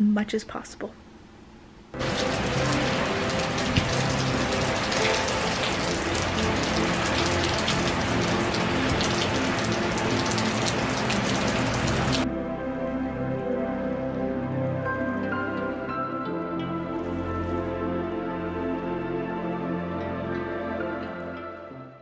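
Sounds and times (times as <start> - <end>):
steady rain falling: 2.0 - 12.2
soft music: 2.0 - 22.0.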